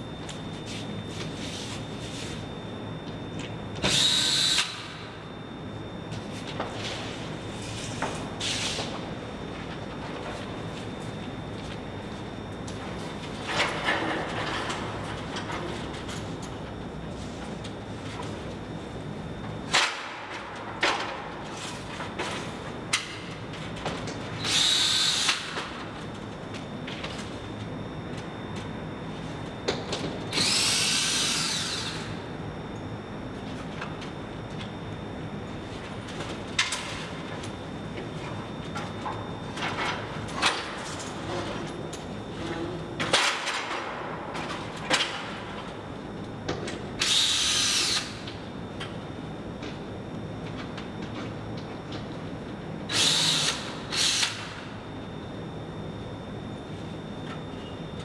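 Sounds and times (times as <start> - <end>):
steady low hum: 0.0 - 58.0
cordless drill whine: 3.8 - 5.0, 24.4 - 25.5, 30.3 - 32.2, 47.0 - 48.2, 52.9 - 54.5.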